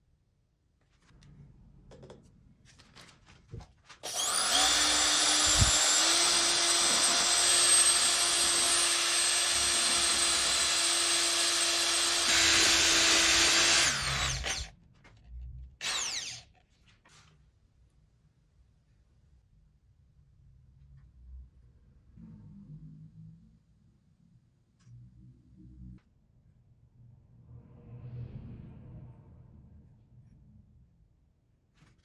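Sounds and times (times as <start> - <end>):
electric drill spinning: 4.0 - 14.7, 15.8 - 16.6.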